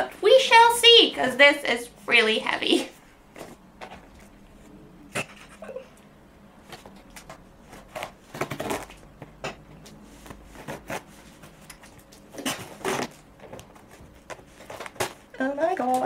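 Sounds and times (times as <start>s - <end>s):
scissors cutting packaging: 7.1s - 9.0s.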